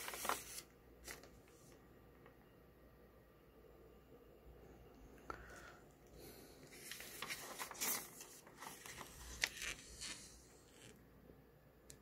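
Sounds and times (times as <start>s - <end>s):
paper page rustling: 0.0s - 1.6s, 6.7s - 11.0s.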